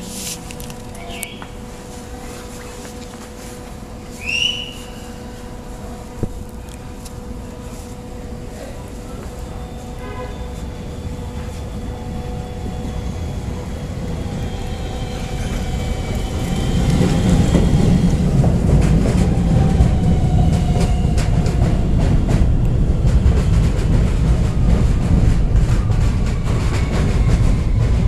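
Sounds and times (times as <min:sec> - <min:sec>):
subway train rumble: 0:00.0 - 0:28.0
train motor whine: 0:09.2 - 0:22.8.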